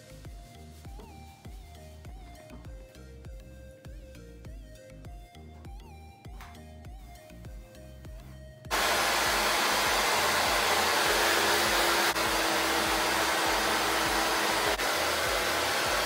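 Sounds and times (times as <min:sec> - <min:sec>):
quiet background music: 0:00.0 - 0:08.7
hair dryer blowing: 0:08.7 - 0:16.0.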